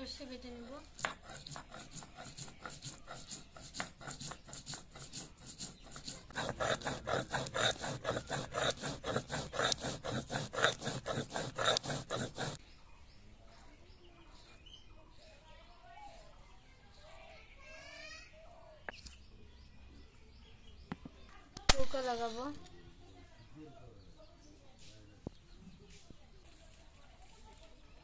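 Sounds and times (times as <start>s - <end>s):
stone grinding rasp: 0.2s - 12.6s.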